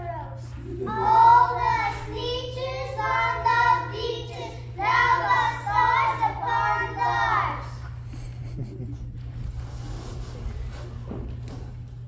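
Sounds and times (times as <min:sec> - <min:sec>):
steady low hum: 0:00.0 - 0:12.0
children singing together: 0:00.7 - 0:07.8.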